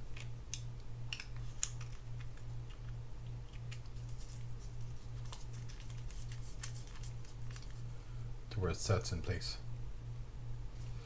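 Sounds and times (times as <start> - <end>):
low pulsing hum: 0.0 - 11.0.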